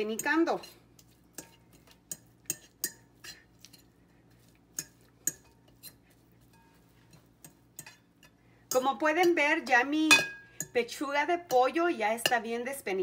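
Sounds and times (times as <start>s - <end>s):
fork clinking on ceramic bowl: 0.1s - 3.9s, 4.7s - 9.4s, 10.1s - 10.8s.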